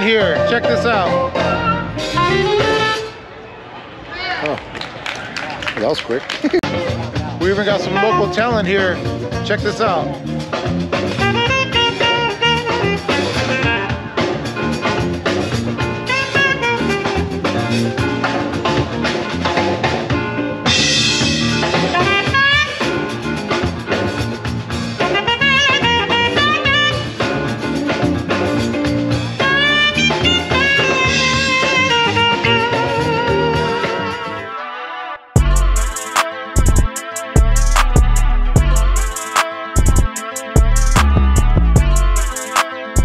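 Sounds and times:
live band playing: 0.0s - 3.2s, 6.6s - 34.6s, 35.4s - 43.0s
drum hits: 35.4s - 42.4s.

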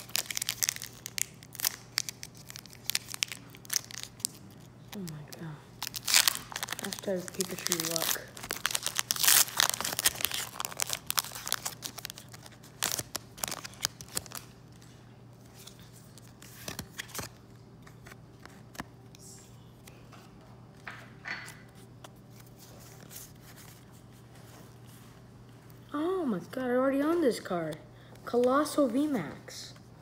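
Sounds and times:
cards rustling and clicking: 0.0s - 14.5s, 15.5s - 18.9s
foil wrapper tearing and crinkling: 0.0s - 14.5s.

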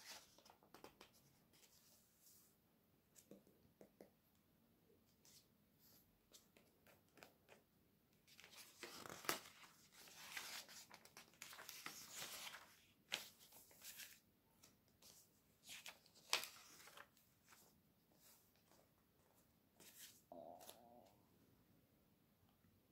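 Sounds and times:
paper pages rustling: 8.3s - 20.8s
pages snapping as they flip: 15.7s - 17.1s.

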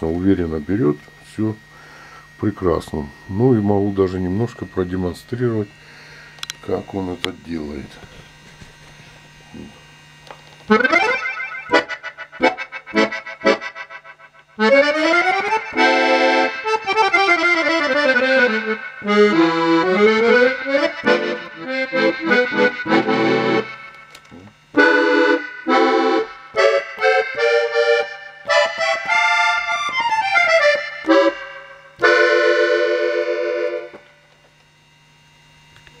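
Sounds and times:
piano accordion playing: 10.7s - 34.2s.

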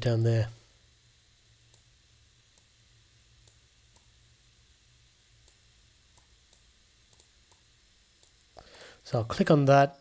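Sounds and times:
low steady hum: 0.0s - 10.0s
computer mouse clicks: 3.4s - 4.1s, 5.4s - 8.9s.

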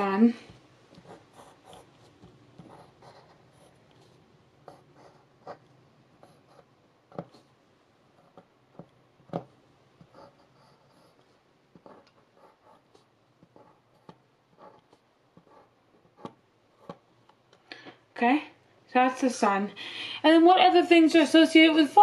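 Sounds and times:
pen scratching on paper: 1.0s - 7.6s, 8.2s - 17.0s.

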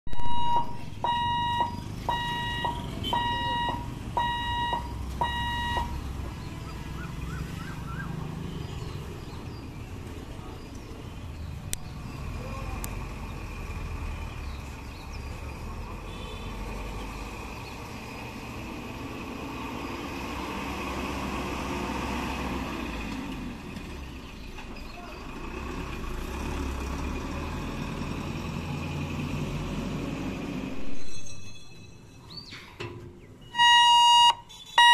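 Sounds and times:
level crossing warning buzzer beeping: 0.1s - 6.0s, 33.5s - 34.9s
truck rumbling over crossing: 0.1s - 31.3s, 32.3s - 34.9s
motorbikes passing: 0.4s - 30.7s.

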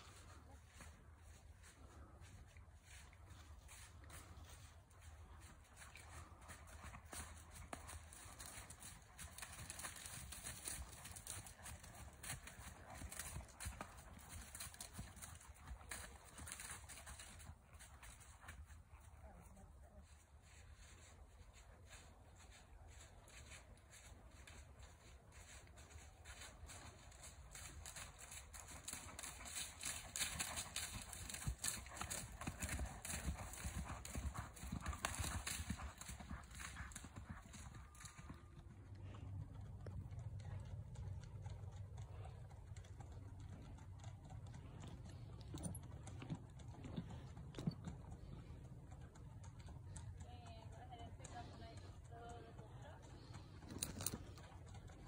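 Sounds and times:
horse hoofbeats walking: 0.0s - 55.0s
low steady rumble: 35.8s - 55.0s.

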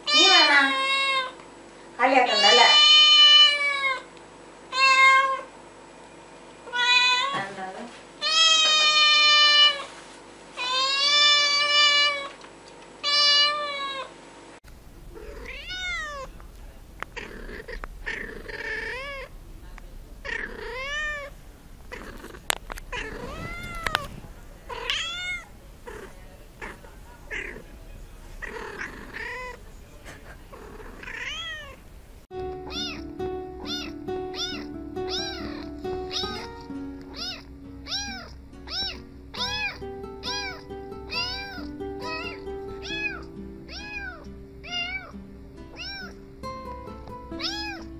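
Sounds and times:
cat meowing: 2.3s - 4.1s, 4.7s - 5.5s, 6.7s - 7.4s, 8.2s - 9.9s, 10.6s - 12.3s, 13.0s - 14.1s, 15.1s - 16.4s, 17.1s - 19.3s, 20.2s - 27.7s, 28.4s - 29.6s, 30.5s - 31.8s, 32.6s - 45.1s, 45.7s - 46.2s, 47.4s - 47.9s
background music: 32.3s - 47.9s.

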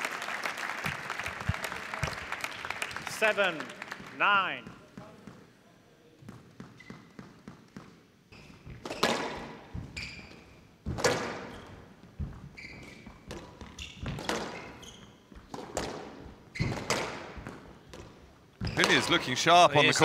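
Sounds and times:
shoes squeaking on court floor: 4.6s - 19.3s.

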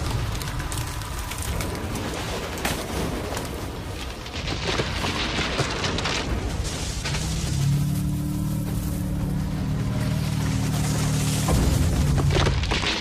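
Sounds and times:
rain-like pattering: 0.0s - 13.0s.

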